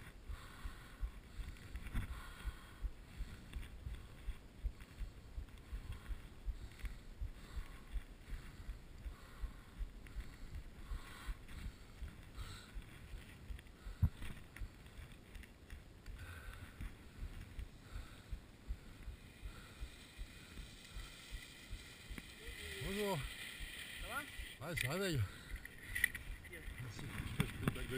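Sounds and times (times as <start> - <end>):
skis rumbling on snow: 19.3 - 25.3.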